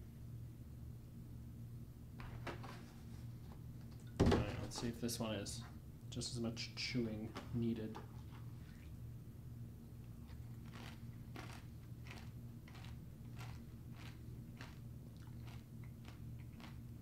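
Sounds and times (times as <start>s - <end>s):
crunchy cereal being chewed: 10.2s - 17.0s.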